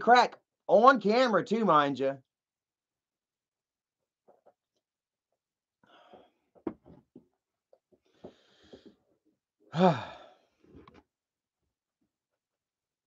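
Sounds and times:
man breathing: 5.8 - 6.6, 8.0 - 10.9.

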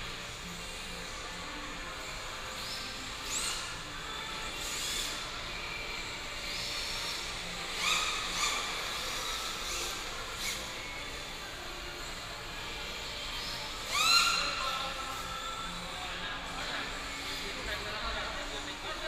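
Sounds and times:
electric motors whining: 0.0 - 19.0
steady background hum: 0.0 - 19.0.

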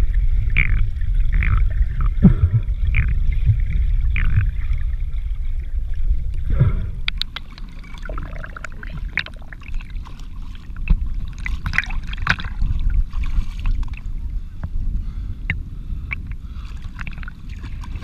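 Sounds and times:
muffled underwater rumble: 0.0 - 18.0
water splashing on camera housing: 6.3 - 14.1.

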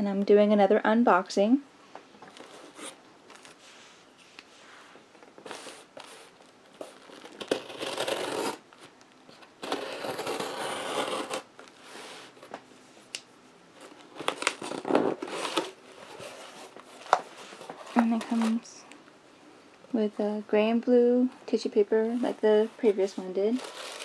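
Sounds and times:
cardboard rustling and scraping: 2.3 - 12.6, 13.7 - 18.7, 22.1 - 24.0.

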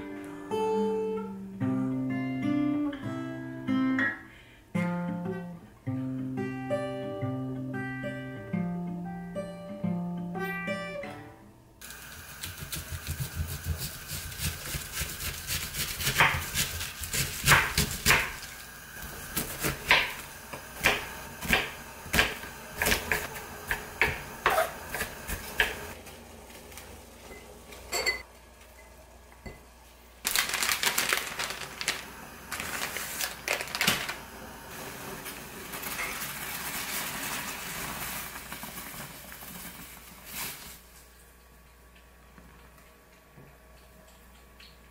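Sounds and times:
knife chopping on wooden board: 12.4 - 18.4, 20.8 - 25.8.

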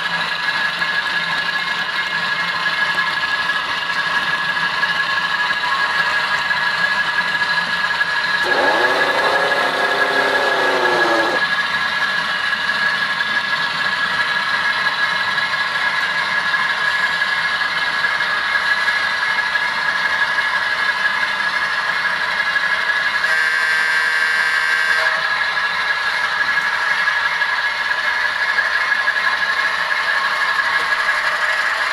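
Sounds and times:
model engine idle sound: 0.0 - 23.6, 25.2 - 31.9
thin high whine: 8.4 - 11.4.

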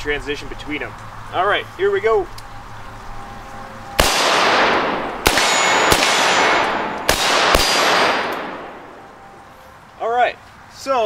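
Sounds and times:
faint ringing tones: 2.5 - 4.0, 8.6 - 10.0
rifle shots echoing: 4.0 - 9.3.

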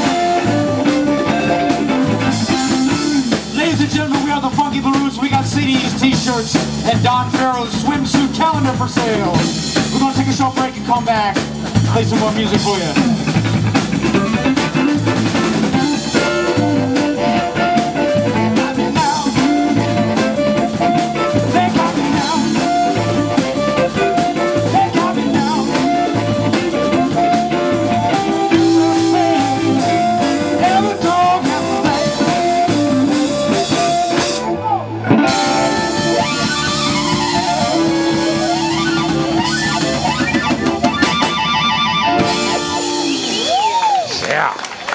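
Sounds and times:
drum kit: 0.0 - 44.5
electric bass: 0.0 - 44.9
electric guitar: 0.0 - 44.9
harmonica: 14.2 - 34.5, 35.1 - 43.6.

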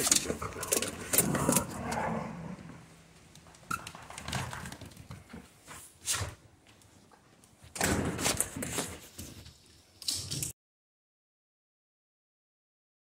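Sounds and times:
dog claws on tile floor: 0.0 - 2.0, 3.2 - 10.6.

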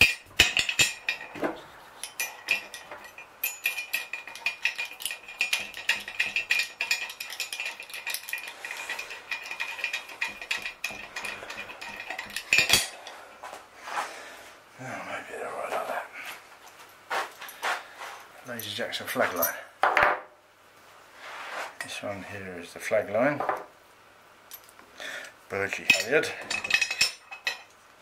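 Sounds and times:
steel tube ringing: 0.0 - 1.4, 2.0 - 13.1
metal blocks clinking: 0.0 - 13.2, 25.7 - 27.8.

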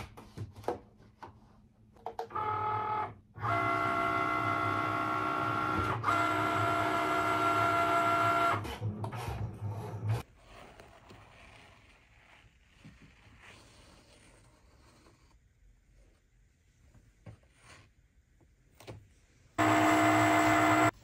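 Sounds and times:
cutting machine motor whine: 2.3 - 8.9, 19.6 - 21.0.

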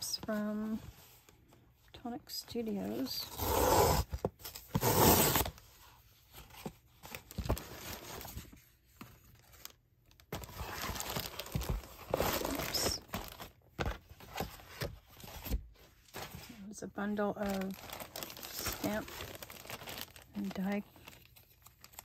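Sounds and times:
packaging tearing and rustling: 9.2 - 16.5, 17.4 - 22.0.

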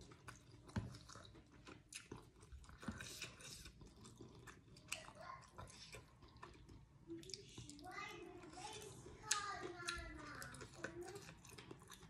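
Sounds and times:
person chewing food: 0.0 - 12.0.

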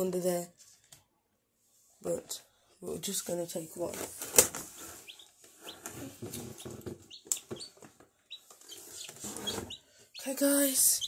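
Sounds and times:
chick peeping: 4.7 - 11.0.

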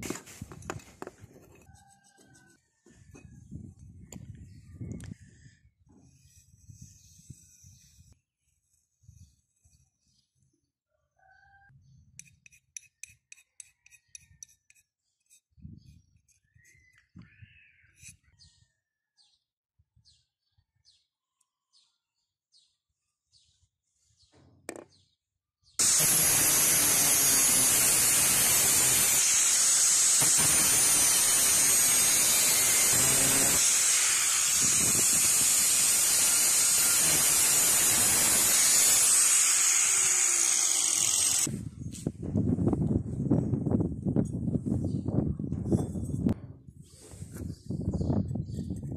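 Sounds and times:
angle grinder cutting steel: 25.8 - 41.5.

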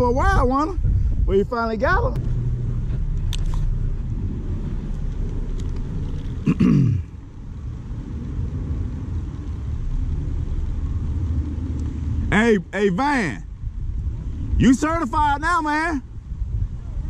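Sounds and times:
steady low rumble: 0.0 - 17.0
man's short vocal sound: 6.4 - 7.1.

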